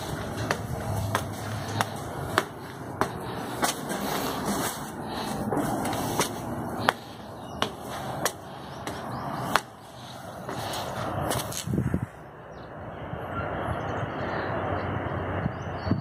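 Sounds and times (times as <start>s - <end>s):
footsteps on marble stairs: 0.0s - 11.8s.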